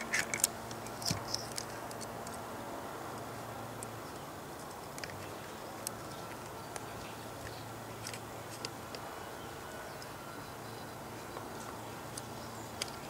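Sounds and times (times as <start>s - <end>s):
hands handling plastic clicks: 0.0s - 2.4s, 3.8s - 9.0s, 11.4s - 13.0s
background hiss and low hum: 0.0s - 13.0s.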